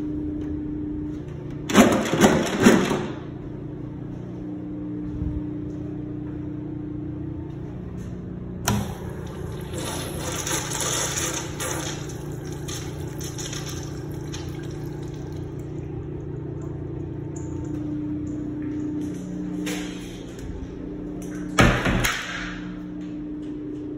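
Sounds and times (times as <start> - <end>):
flush valve click: 8.6 - 10.2
urinal water rushing: 9.0 - 19.0.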